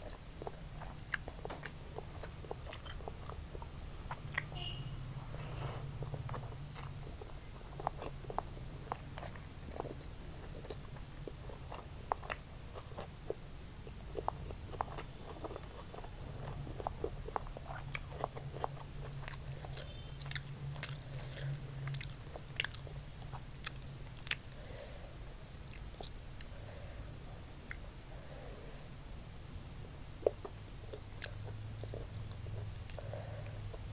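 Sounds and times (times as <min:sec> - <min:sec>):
close chewing with mouth clicks: 0:00.0 - 0:04.6, 0:05.2 - 0:26.6, 0:27.6 - 0:27.9, 0:30.2 - 0:33.9
steady low hum: 0:00.0 - 0:33.9.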